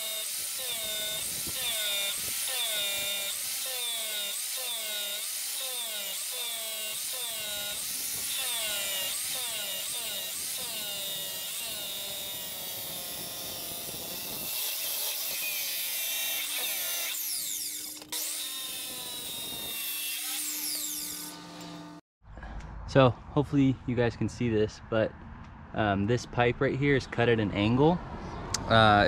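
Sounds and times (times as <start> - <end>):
miter saw cutting metal pipe: 0.0 - 22.0.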